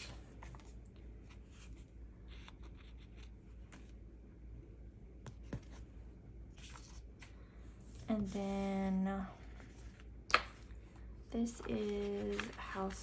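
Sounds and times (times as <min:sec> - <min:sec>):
sticker paper rustling: 0:11.6 - 0:13.0.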